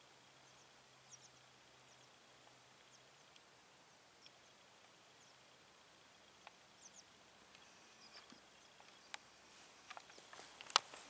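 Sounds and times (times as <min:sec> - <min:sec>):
faint bird chirps: 0:00.0 - 0:10.6
clicks: 0:09.9 - 0:11.0.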